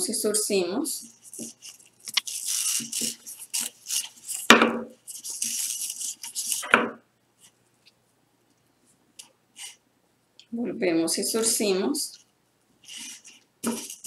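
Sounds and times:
mesh ribbon rustling and crinkling: 1.1 - 6.6, 12.8 - 14.0.

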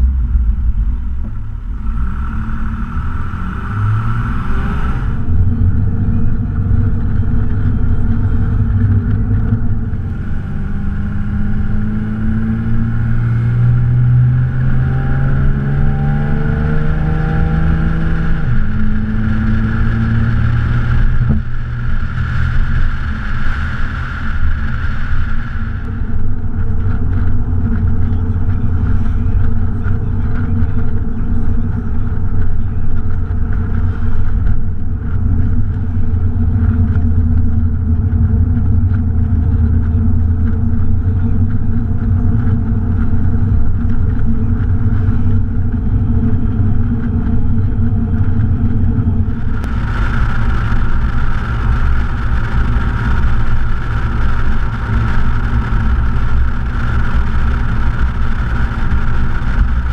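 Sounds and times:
car engine running: 0.0 - 59.9
wind and road noise: 0.0 - 59.9.

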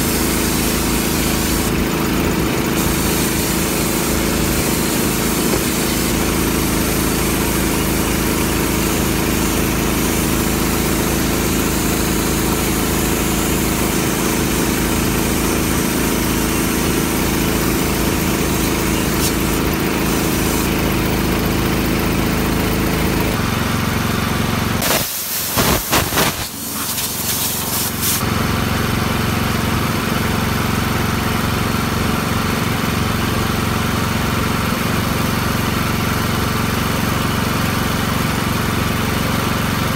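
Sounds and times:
air tool grinding metal: 0.0 - 20.9, 24.8 - 28.2
small engine running: 0.0 - 24.8, 25.5 - 39.9
loud clatter: 24.8 - 27.9.

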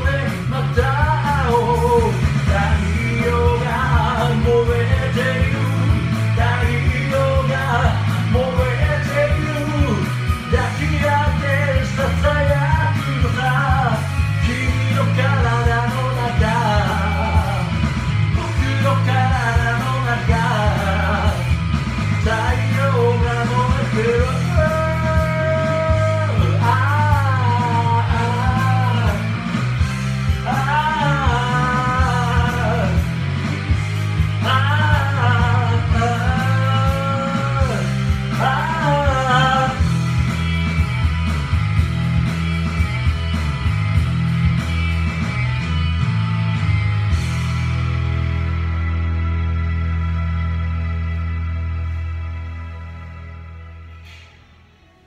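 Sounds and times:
man singing karaoke: 0.0 - 40.4
rock backing track with guitar: 0.0 - 54.9.

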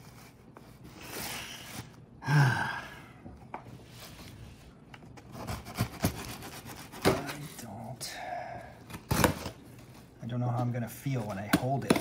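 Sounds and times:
man sighing heavily: 2.2 - 3.4.

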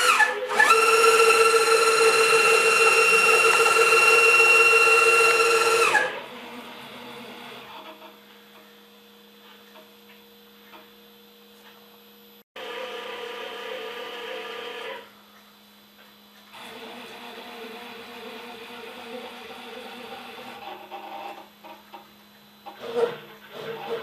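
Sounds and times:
stepper motors whining: 0.0 - 6.2.

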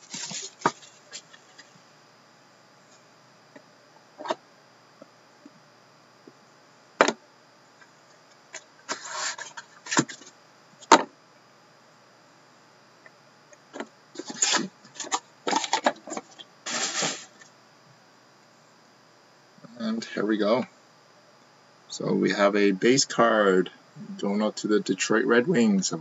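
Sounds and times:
cards scraping and sliding: 8.9 - 10.3, 14.2 - 17.4.

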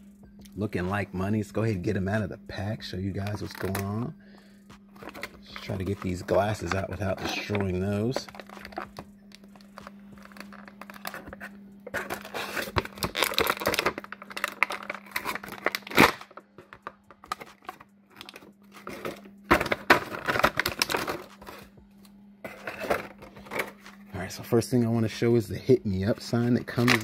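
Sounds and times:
plastic packaging crinkling: 3.2 - 4.0, 4.9 - 21.7, 26.0 - 27.0
plastic packaging snapping: 12.0 - 21.5.

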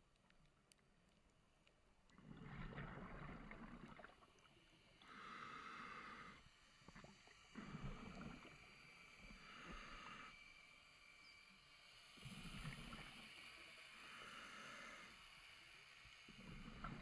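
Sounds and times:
exhaled bubbles rumbling: 2.2 - 4.4.

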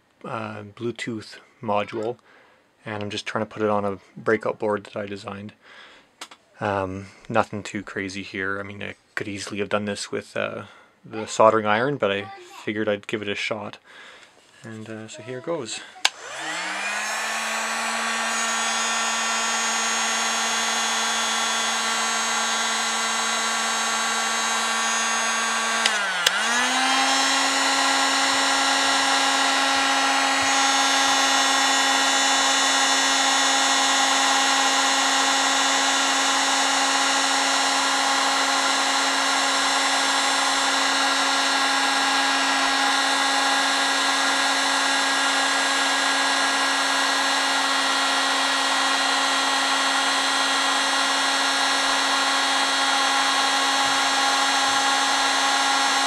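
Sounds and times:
heat gun fan whine: 15.4 - 56.0.

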